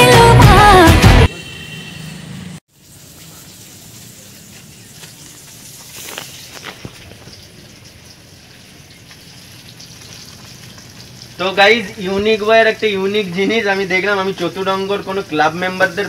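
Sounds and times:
fish sizzling in oil: 0:02.7 - 0:16.0
sharp crackles: 0:04.8 - 0:11.4.

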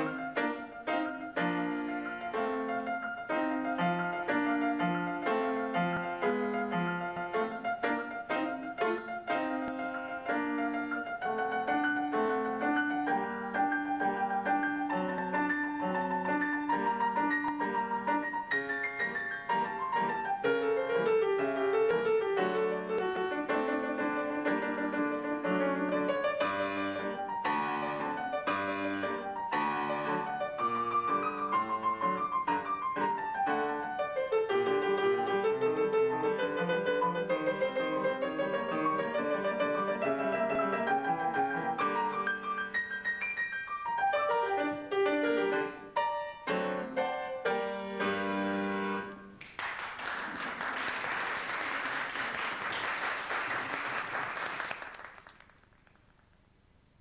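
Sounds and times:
classical piano piece: 0:00.0 - 0:56.6
audience applause: 0:49.4 - 0:55.8.

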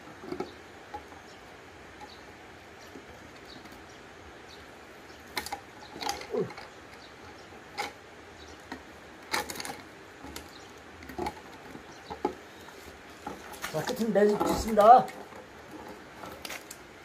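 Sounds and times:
cord rustling: 0:09.3 - 0:16.9.

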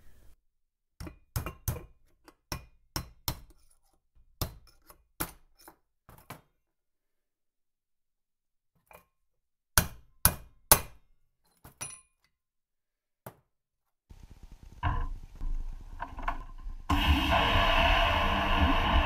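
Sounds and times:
vapor blaster low hum: 0:14.3 - 0:19.0
hammer blows on metal drift: 0:16.9 - 0:19.0.

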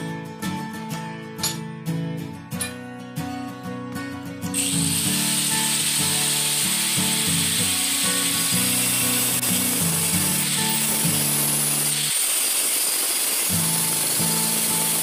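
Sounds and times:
angle grinder cutting metal: 0:04.6 - 0:15.0.

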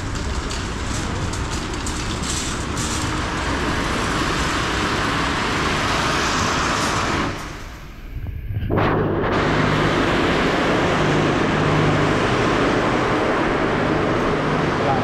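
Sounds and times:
shopping trolley wheels rattling: 0:00.0 - 0:07.6.

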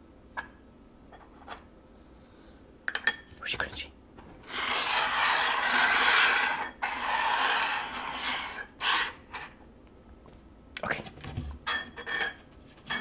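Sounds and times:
metal tins scraping across table: 0:04.4 - 0:09.6.

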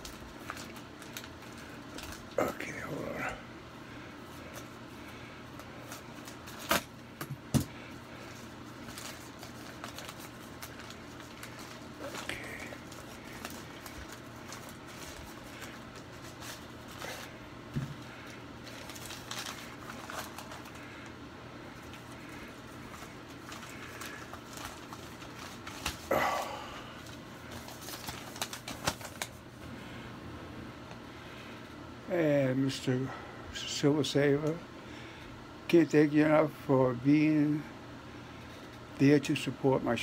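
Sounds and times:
paper wrapping crinkling: 0:00.0 - 0:03.3, 0:07.7 - 0:29.6.

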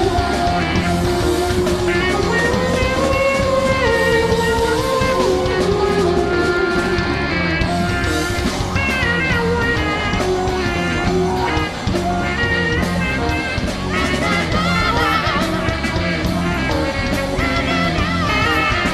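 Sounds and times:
electric guitar lines: 0:00.0 - 0:18.9
psychedelic rock band playing: 0:00.0 - 0:18.9.

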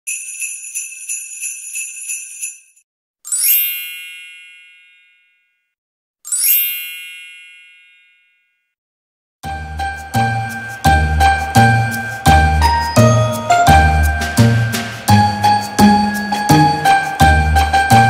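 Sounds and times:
small bells shaken rhythmically: 0:00.1 - 0:04.4, 0:10.5 - 0:18.0
twinkling chime sound effect: 0:06.3 - 0:08.4.

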